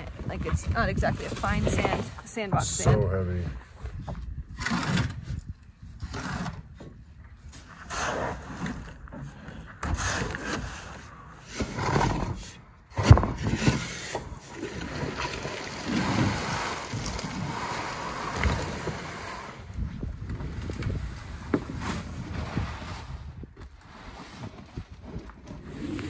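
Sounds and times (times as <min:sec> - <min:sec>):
tarp dragged over sand: 0:15.6 - 0:19.7, 0:21.0 - 0:26.0.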